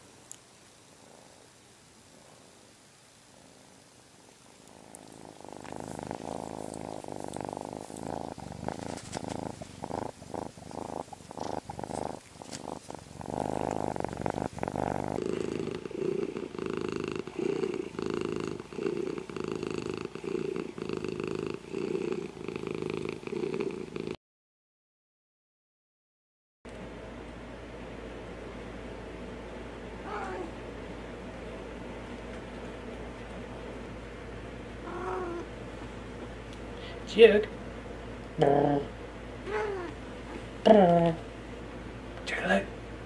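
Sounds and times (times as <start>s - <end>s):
cat purring rhythmically: 0.9s - 24.2s, 34.7s - 36.4s
kitten purring: 1.0s - 24.2s, 30.0s - 30.6s, 34.8s - 35.9s, 38.4s - 40.0s.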